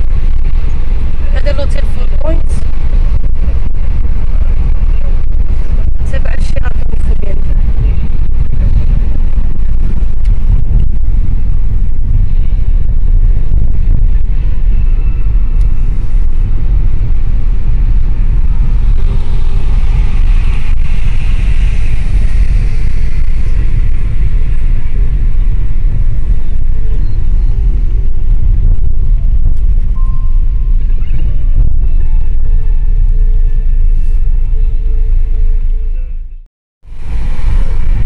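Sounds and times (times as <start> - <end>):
car road noise: 0.0 - 38.0
wind buffeting microphone: 0.0 - 38.0.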